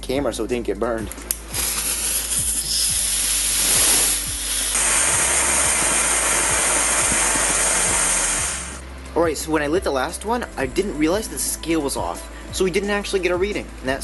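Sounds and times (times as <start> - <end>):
rocket motor rushing hiss: 1.3 - 8.8.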